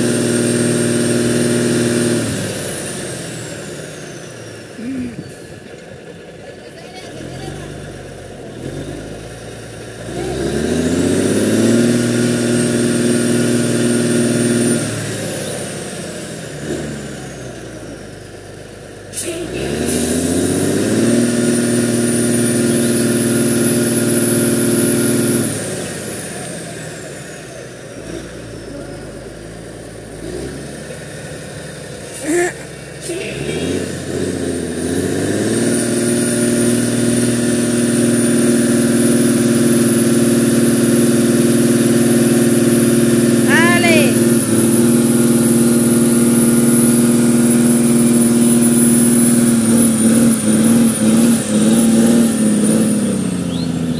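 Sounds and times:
diesel truck engine revving: 0.0s - 53.9s.

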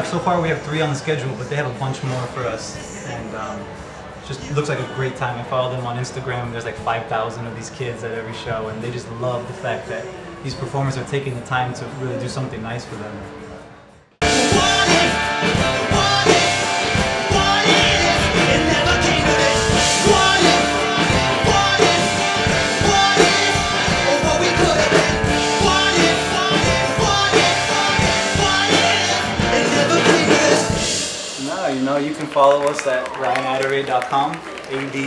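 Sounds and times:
man singing: 14.2s - 31.0s
rock band playing: 14.2s - 33.6s.

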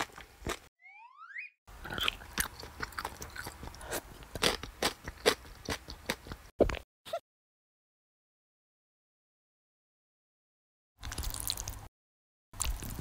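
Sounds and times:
crunchy chewing of fried chicken: 1.8s - 6.5s, 11.0s - 11.8s, 12.6s - 13.0s.

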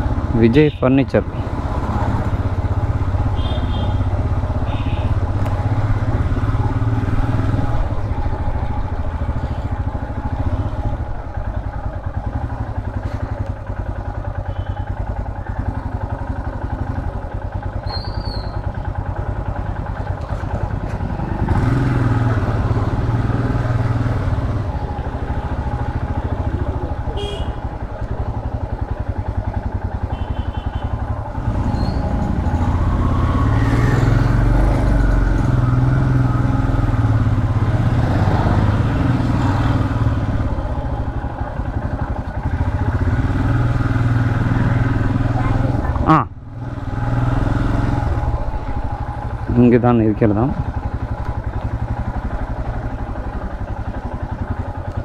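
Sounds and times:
motorcycle engine thumping: 24.9s - 31.3s.

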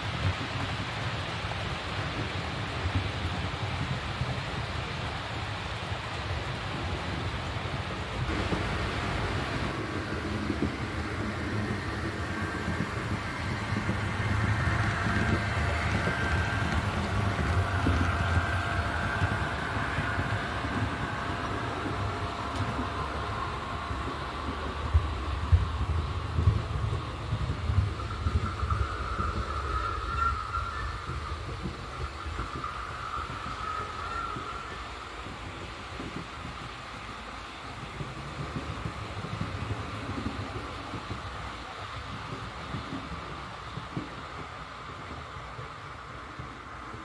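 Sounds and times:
model train wheels on rails: 0.0s - 47.0s
high whine: 8.3s - 36.2s
model train motor humming: 8.3s - 36.7s.

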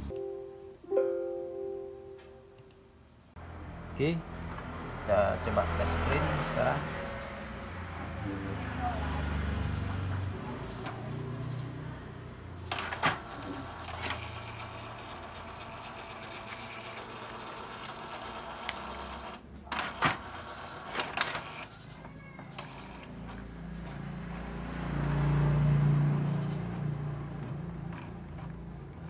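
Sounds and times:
printer motor whirring: 12.5s - 25.1s, 26.0s - 29.0s
printer paper feed clicks: 12.7s - 21.7s.

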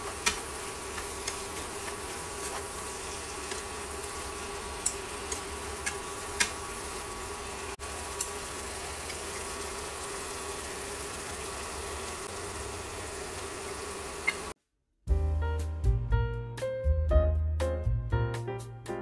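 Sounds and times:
food sizzling in a frying pan: 0.0s - 14.5s.

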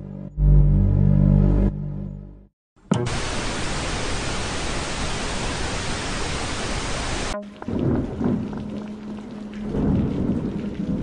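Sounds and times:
tv static hiss: 3.1s - 7.4s.

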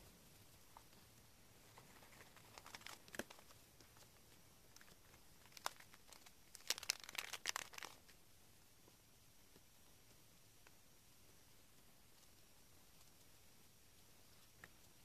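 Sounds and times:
paper and plastic crinkling: 1.7s - 3.6s, 4.7s - 8.1s.

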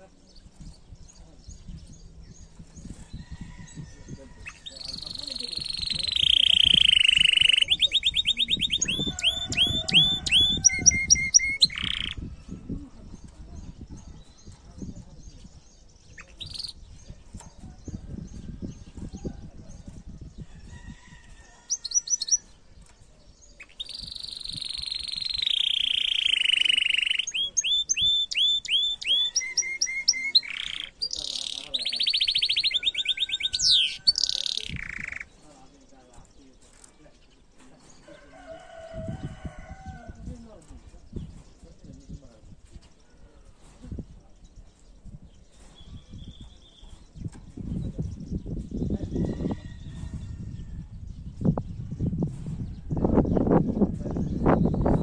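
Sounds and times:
canary singing: 0.0s - 42.3s.

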